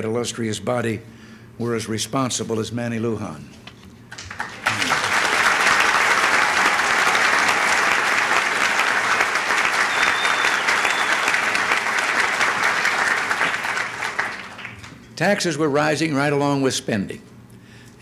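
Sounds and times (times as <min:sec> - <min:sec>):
large audience applauding: 0:04.1 - 0:15.0.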